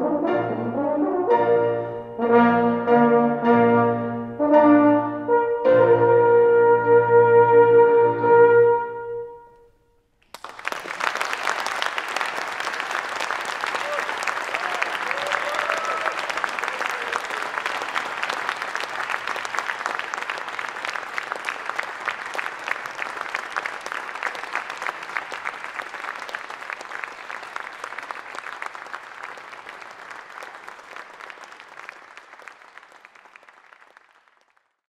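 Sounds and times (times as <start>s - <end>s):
audience applauding: 10.2s - 34.8s.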